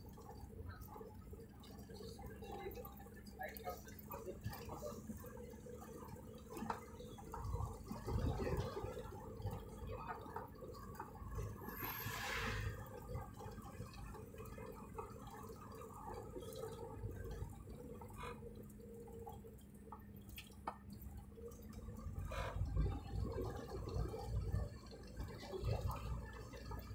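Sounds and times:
engine and road rumble: 0.0s - 26.9s
brief hiss: 11.7s - 12.8s
faint clicks: 19.2s - 21.0s.

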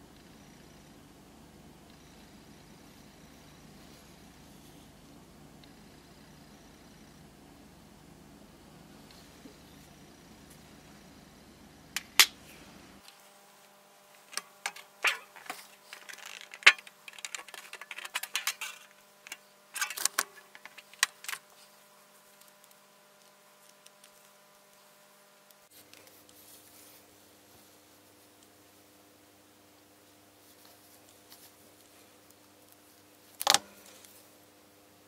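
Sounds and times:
metal parts clicking on steel tray: 14.4s - 21.4s.

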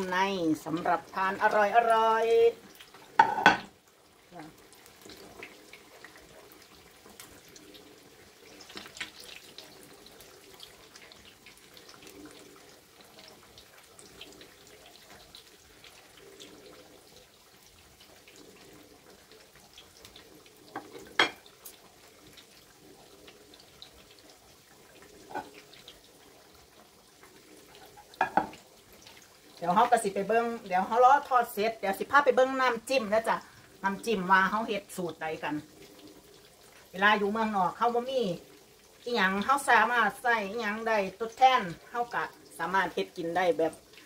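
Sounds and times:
food deep-frying in oil: 0.0s - 44.0s.

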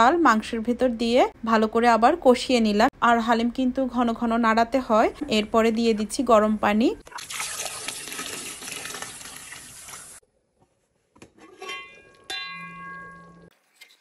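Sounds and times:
water pouring into a pot: 7.0s - 10.2s
metal pot lid clinking: 11.4s - 13.5s.

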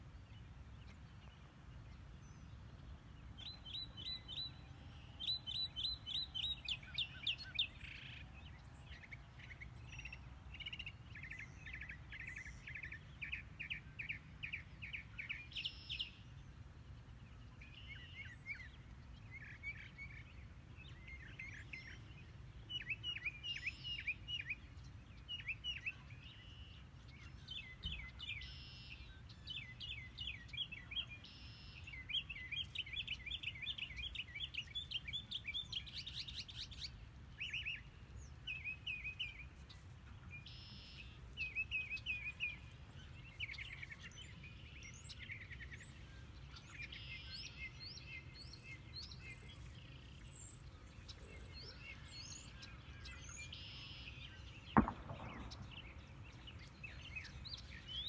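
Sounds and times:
songbirds singing and chirping: 0.0s - 58.0s
sharp knock: 54.8s - 55.9s.

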